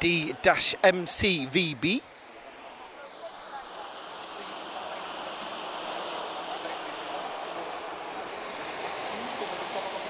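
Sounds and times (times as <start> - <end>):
surf: 0.0 - 10.0
wind: 0.0 - 10.0
distant aircraft engine drone: 2.0 - 10.0.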